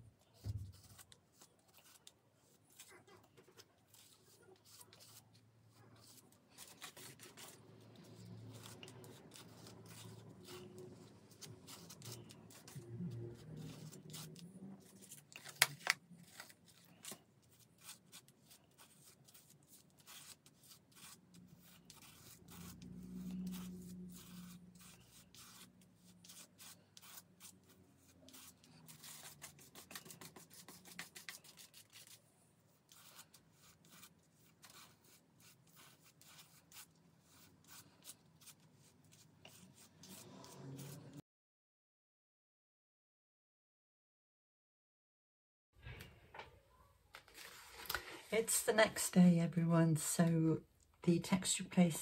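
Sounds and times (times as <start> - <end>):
palette knife scraping paste: 0.4 - 41.2.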